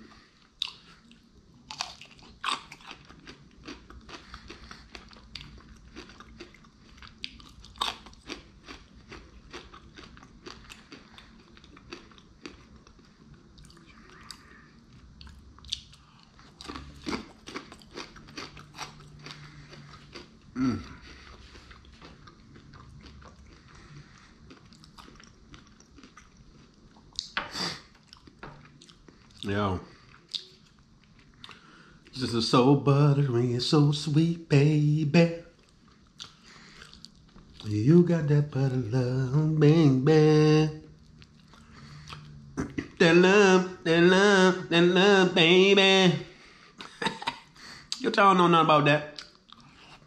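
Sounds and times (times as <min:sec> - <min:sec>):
person chewing crunchy food: 0:00.0 - 0:32.1, 0:35.5 - 0:39.9, 0:41.0 - 0:43.0, 0:49.2 - 0:50.0
low falling hum: 0:37.5 - 0:47.3.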